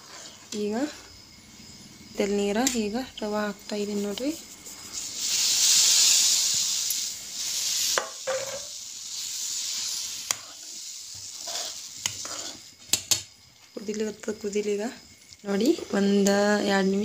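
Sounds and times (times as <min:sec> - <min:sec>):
sizzling hiss in pan: 0:00.0 - 0:17.0.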